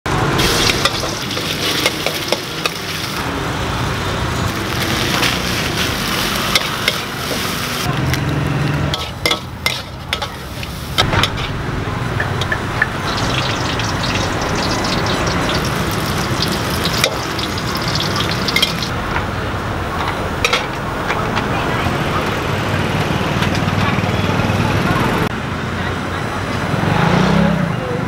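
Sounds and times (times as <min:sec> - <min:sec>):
food sizzling in a wok: 0:00.4 - 0:07.9, 0:08.9 - 0:11.5, 0:12.3 - 0:19.0.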